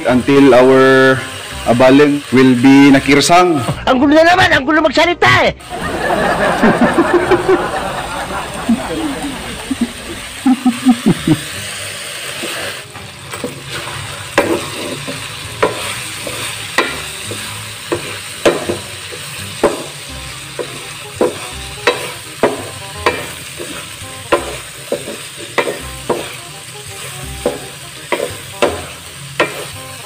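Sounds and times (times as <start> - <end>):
frying sizzle: 0.0 - 3.8, 5.6 - 30.0
metal spatula scraping wok: 12.2 - 29.8.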